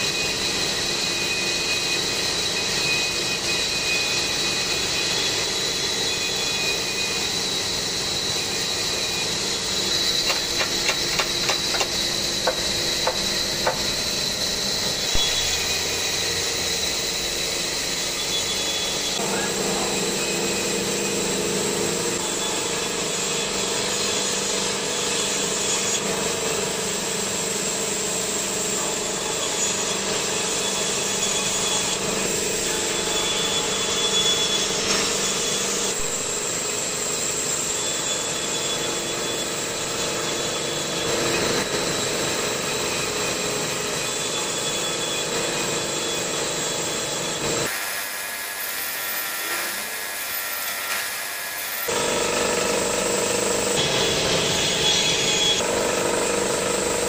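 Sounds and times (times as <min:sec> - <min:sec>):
band saw whining: 0:00.0 - 0:57.0
sharp clicks and knocks: 0:10.1 - 0:13.9.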